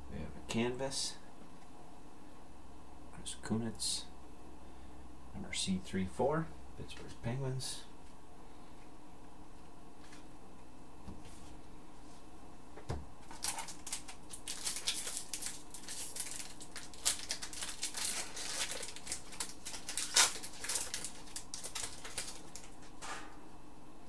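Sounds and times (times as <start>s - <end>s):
foil wrapper rustling: 13.2s - 23.0s.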